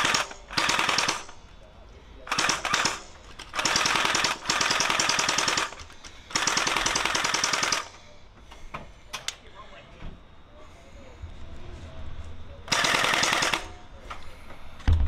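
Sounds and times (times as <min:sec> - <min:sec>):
toy blaster firing: 0:00.0 - 0:01.3, 0:02.3 - 0:08.0, 0:12.7 - 0:13.8.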